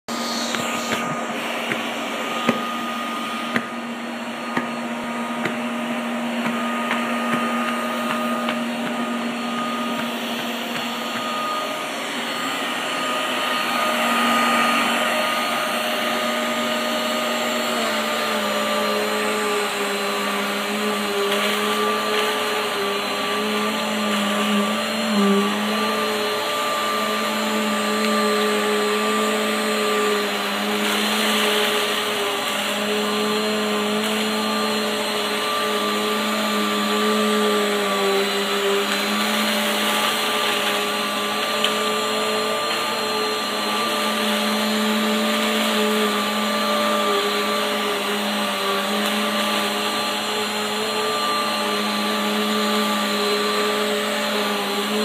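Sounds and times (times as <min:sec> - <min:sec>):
vacuum cleaner running: 0:00.0 - 0:55.0.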